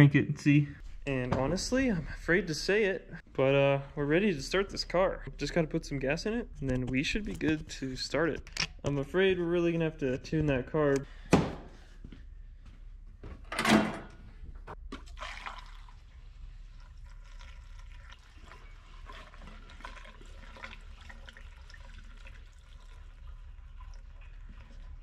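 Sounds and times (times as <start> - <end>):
gasoline pouring into fuel filler: 15.0 - 25.0.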